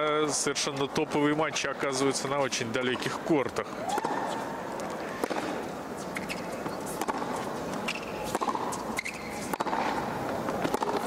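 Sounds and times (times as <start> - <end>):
stadium background hum: 0.0 - 11.0
rackets striking tennis ball: 3.0 - 11.0
ball bounces: 3.9 - 5.6, 6.2 - 11.0.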